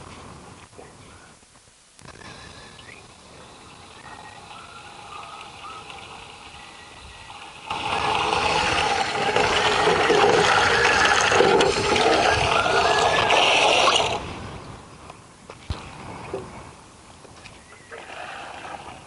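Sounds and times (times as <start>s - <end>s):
water splashing into container: 7.5s - 14.2s.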